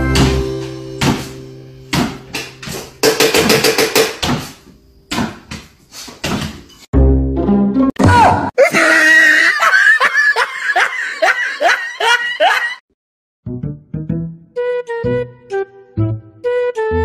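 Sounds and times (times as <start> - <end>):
background music: 0.0 - 4.1, 7.0 - 8.0, 13.5 - 17.0
sharp percussive hits: 0.1 - 4.4.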